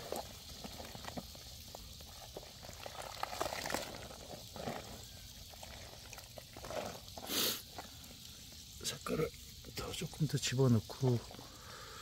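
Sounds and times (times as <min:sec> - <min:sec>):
water splashing: 0:00.0 - 0:09.0.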